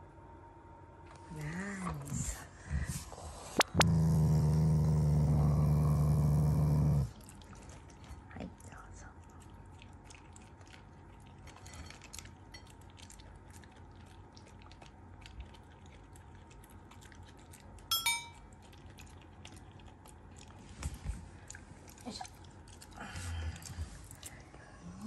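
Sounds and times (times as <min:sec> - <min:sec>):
dog crunching dry kibble: 0:09.5 - 0:24.4
sharp metallic clink: 0:17.9 - 0:18.4.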